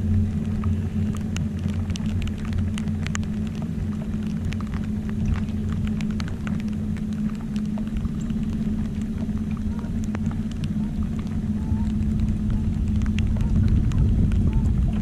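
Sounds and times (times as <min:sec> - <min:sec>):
raindrops ticking on boat: 0:00.0 - 0:15.0
steady low hum: 0:00.0 - 0:15.0.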